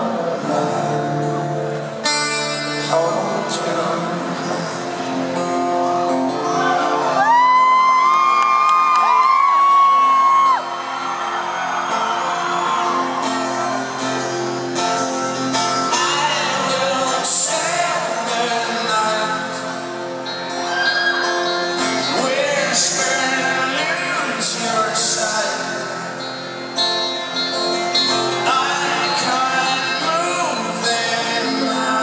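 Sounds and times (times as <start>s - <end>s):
person singing: 0.0s - 5.7s, 15.5s - 32.0s
vocal harmony: 0.0s - 8.3s, 10.2s - 32.0s
acoustic guitar: 0.0s - 32.0s.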